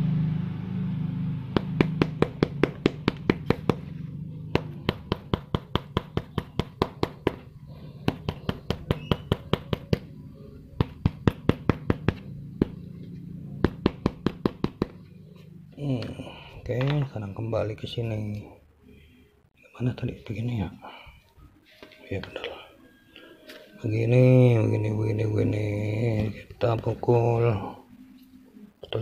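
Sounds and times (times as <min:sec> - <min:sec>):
tool tapping on rubber sole: 0:01.6 - 0:03.9, 0:04.5 - 0:10.1, 0:10.8 - 0:12.9, 0:13.6 - 0:15.1.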